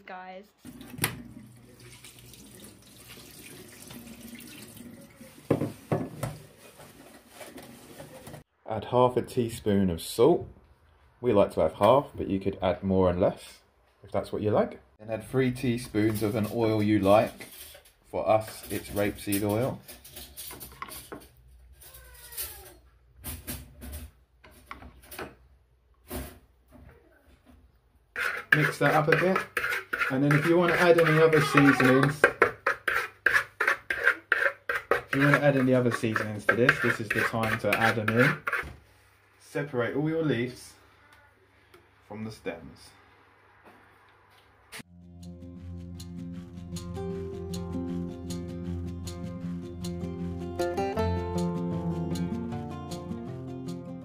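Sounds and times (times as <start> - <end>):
tap water running into colander: 0.6 - 6.4.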